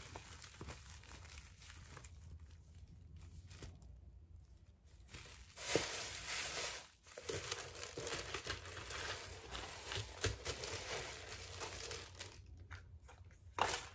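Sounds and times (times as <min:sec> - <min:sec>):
tissue paper crinkling: 0:00.0 - 0:12.5.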